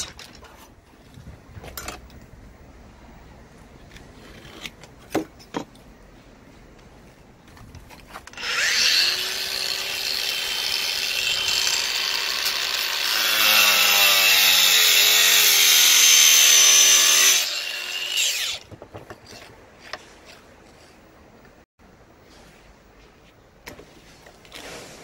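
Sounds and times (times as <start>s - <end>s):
power saw cutting board: 8.3s - 18.6s.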